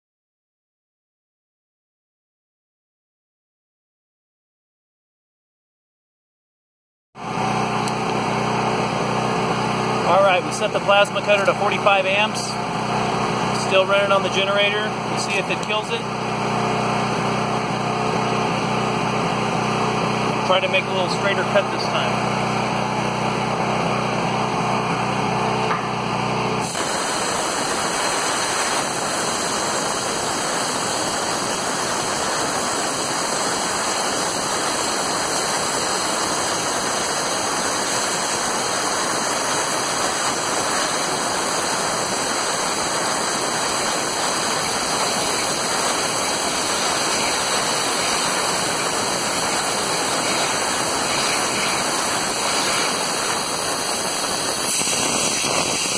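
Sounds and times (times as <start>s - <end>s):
plasma cutter arc hissing: 13.3s - 16.2s, 26.6s - 55.9s.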